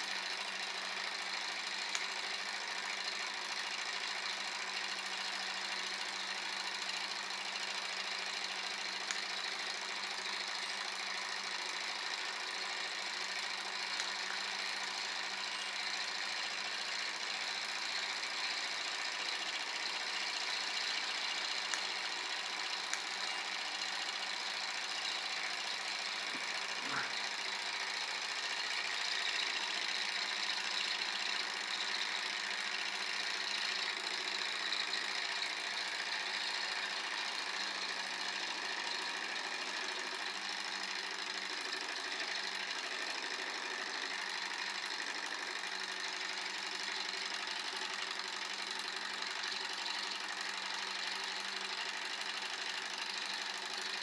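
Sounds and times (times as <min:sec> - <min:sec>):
stirling engine running: 0:09.4 - 0:40.8.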